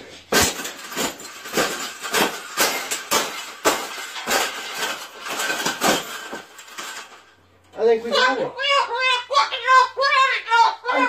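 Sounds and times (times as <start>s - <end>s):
wire cage crunching under boots: 0.1s - 7.3s.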